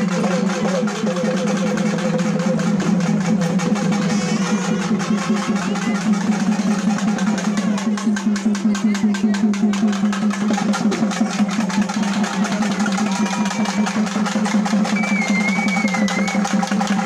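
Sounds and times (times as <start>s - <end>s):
fast steady drumming: 0.0s - 17.0s.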